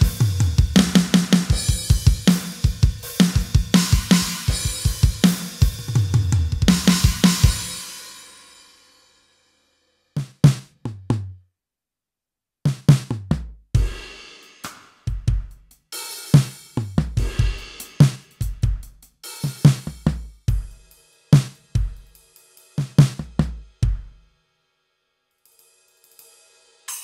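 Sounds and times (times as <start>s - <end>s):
drum hits: 0.0s - 7.8s, 16.4s - 18.9s
steady drum groove: 0.0s - 9.0s, 10.2s - 11.4s, 12.7s - 24.4s, 25.4s - 27.0s.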